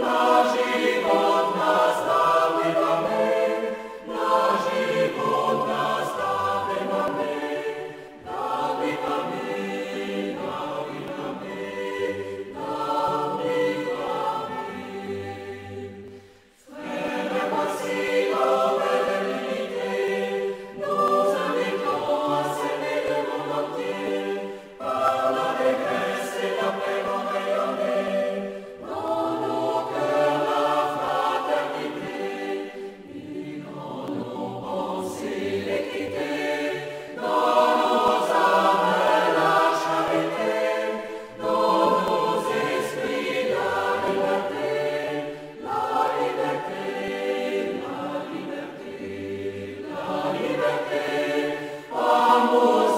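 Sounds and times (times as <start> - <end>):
choir singing: 0.0 - 52.9.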